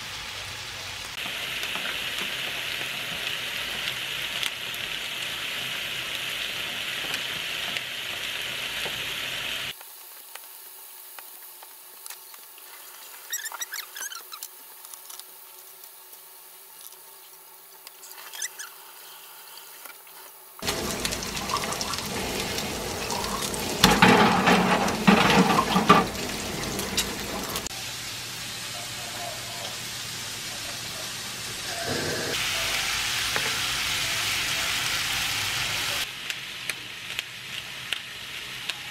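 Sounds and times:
meat sizzling in a frying pan: 0.0s - 38.9s
metal tongs scraping and clattering: 23.6s - 27.7s.

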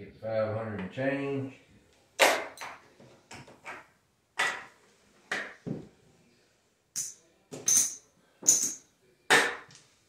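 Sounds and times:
casino chips clacking: 7.0s - 8.8s.

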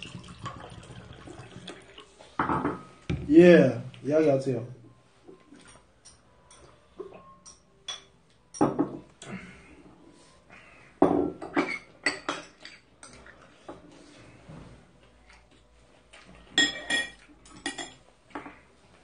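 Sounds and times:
dishes clattering: 2.4s - 3.3s, 5.6s - 9.1s, 11.0s - 13.4s, 16.4s - 18.6s
chopsticks clinking on bowls: 16.2s - 18.0s.

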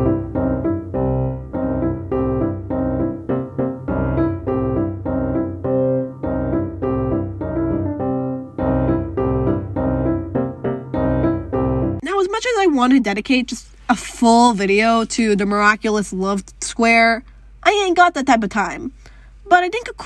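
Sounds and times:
piano tune: 0.0s - 12.0s.

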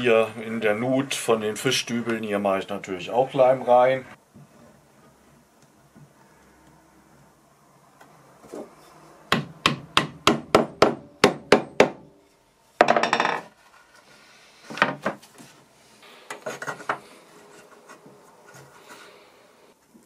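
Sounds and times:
hammer tapping wood: 9.3s - 12.0s.

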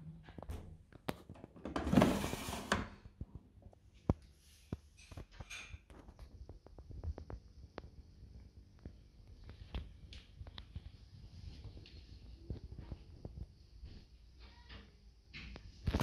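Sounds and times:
plastic drawer sliding open: 1.7s - 3.0s.

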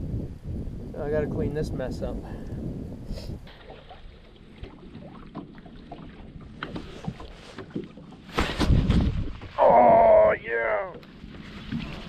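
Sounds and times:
wind on microphone: 0.0s - 10.5s
waves lapping against boat hull: 3.3s - 12.0s.

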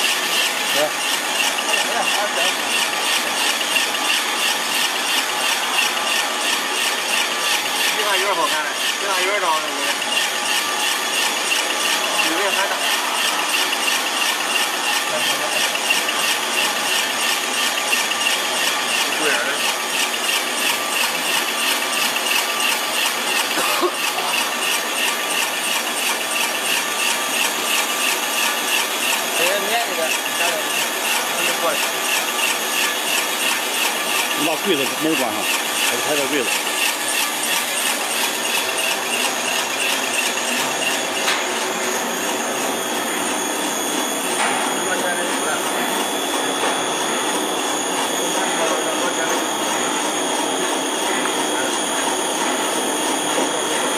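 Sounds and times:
machinery rattling: 0.2s - 42.4s.

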